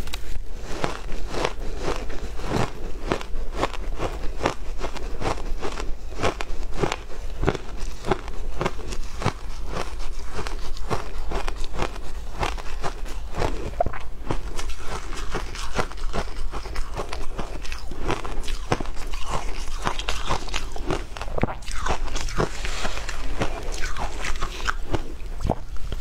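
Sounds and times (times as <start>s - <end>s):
shaved ice crunching: 14.3s - 25.1s.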